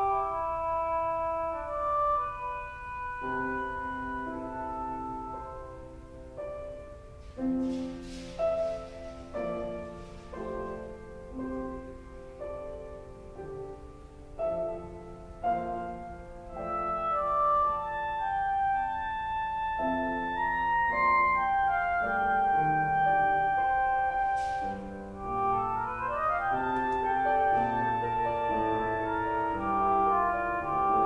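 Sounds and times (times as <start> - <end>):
electronic wind instrument melody: 0.0 - 7.1, 15.4 - 31.0
piano accompaniment: 0.0 - 31.0.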